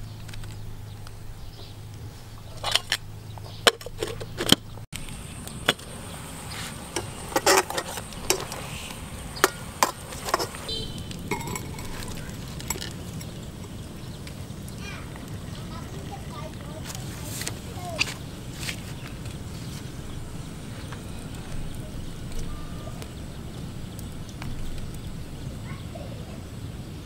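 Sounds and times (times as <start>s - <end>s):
outdoor background noise: 0.0s - 27.0s
utensils clicking around metal pot: 6.9s - 25.1s.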